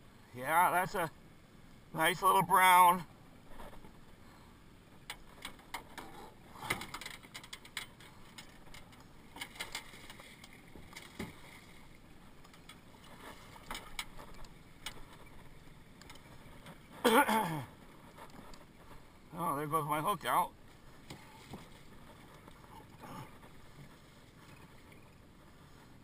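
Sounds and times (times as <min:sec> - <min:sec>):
water splashing: 0:09.2 - 0:18.2.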